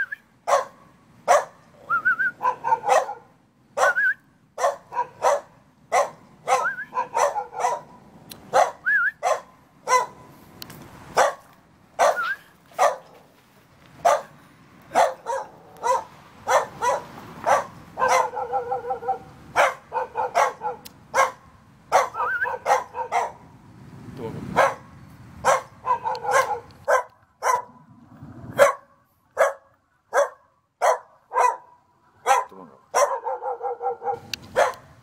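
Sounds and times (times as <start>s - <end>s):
dog barking: 0.5s - 1.6s, 2.4s - 10.3s, 11.2s - 13.2s, 14.0s - 23.4s, 24.6s - 27.8s, 28.5s - 35.0s.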